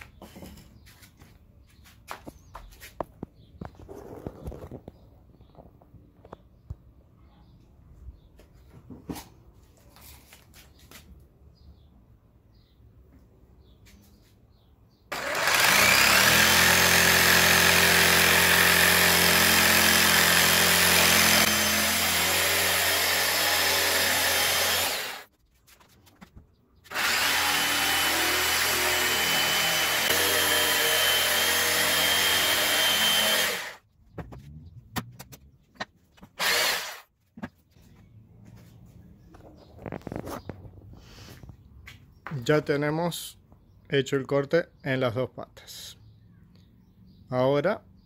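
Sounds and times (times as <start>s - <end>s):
electric jigsaw cutting wood: 15.1s - 25.3s, 26.9s - 33.8s, 36.4s - 37.1s.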